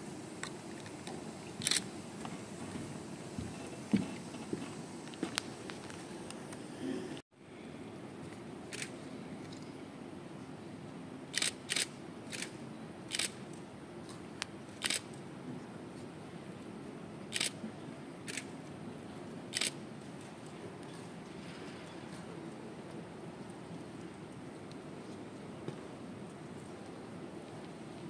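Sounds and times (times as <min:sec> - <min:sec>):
camera shutters clicking: 0:01.6 - 0:01.9, 0:11.4 - 0:13.4, 0:14.8 - 0:15.1, 0:17.3 - 0:17.6, 0:18.3 - 0:18.5, 0:19.5 - 0:19.8.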